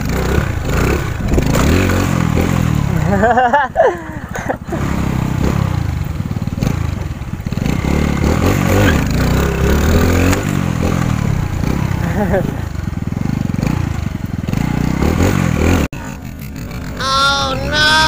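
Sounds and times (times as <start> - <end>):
motorcycle engine revving: 0.0 - 18.0
wind rushing over microphone: 0.4 - 2.4.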